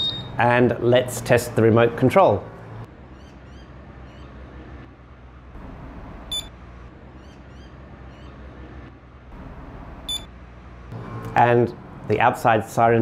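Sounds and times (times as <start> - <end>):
short high electronic beep: 0.0 - 0.4
faint bird chirps: 3.1 - 4.4, 7.2 - 8.4.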